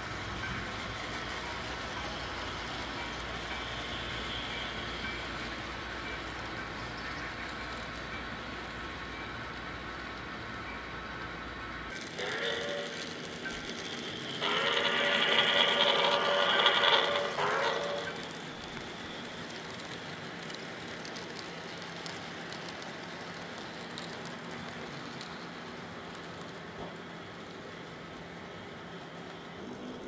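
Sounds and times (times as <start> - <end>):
model train rolling on track: 0.0 - 30.0
model train chime whistle: 3.4 - 5.3, 12.0 - 18.4.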